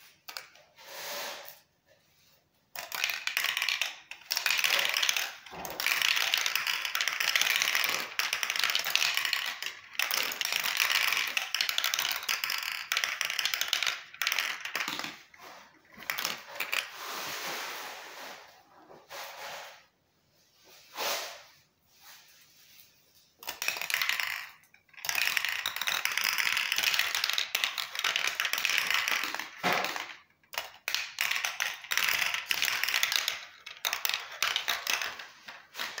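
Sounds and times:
marbles clattering down plastic run: 2.7s - 17.0s, 23.4s - 36.0s.

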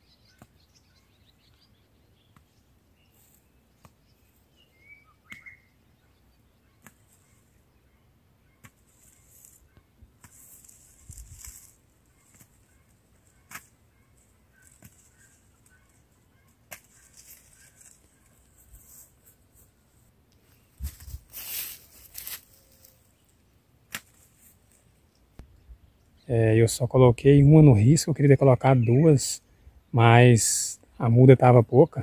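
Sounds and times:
rustling noise: 8.6s - 23.3s.

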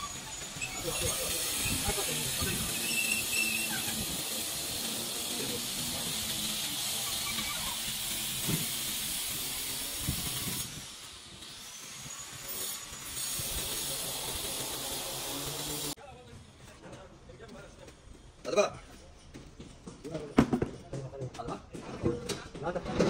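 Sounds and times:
trowel scraping sand: 0.0s - 16.0s
steady hiss: 0.3s - 16.0s.

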